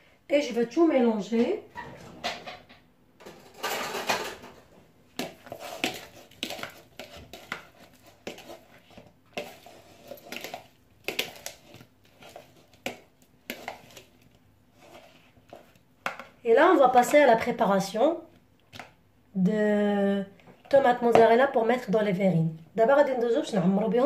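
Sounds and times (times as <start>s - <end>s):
metal spoon stirring in bowl: 5.1s - 17.6s.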